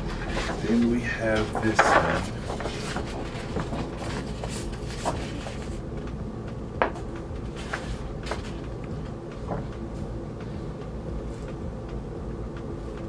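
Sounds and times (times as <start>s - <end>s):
paper poster rustling: 0.0s - 5.8s, 7.5s - 8.6s.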